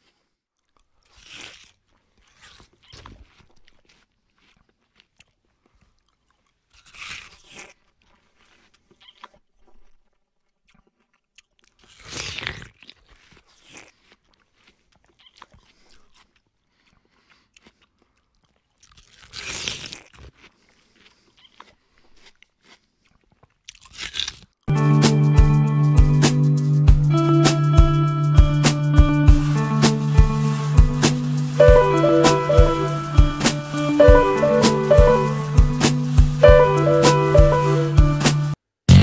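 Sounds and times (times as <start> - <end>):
chewing: 0.0 - 24.7
guitar music: 24.7 - 39.0.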